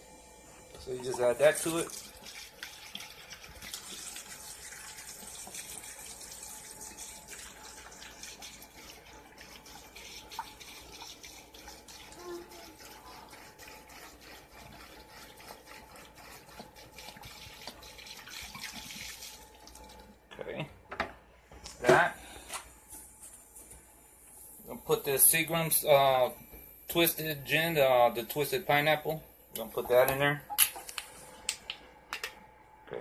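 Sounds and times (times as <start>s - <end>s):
liquid pouring and splashing: 0.9s - 20.1s.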